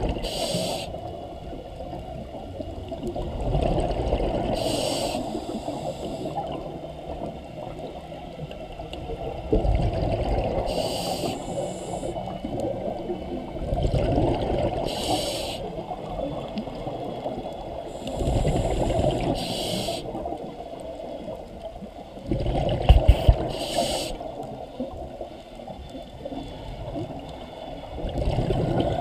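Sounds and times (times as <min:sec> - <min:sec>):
underwater rumble: 0:00.0 - 0:29.0
scuba regulator exhaust bubbles: 0:09.2 - 0:20.5, 0:22.2 - 0:25.2, 0:26.4 - 0:29.0.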